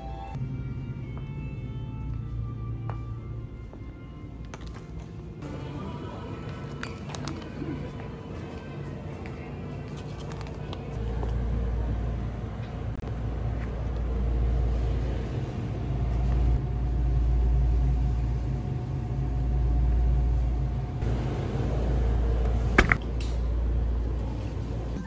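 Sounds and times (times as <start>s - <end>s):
low rumbling noise: 10.5s - 25.0s.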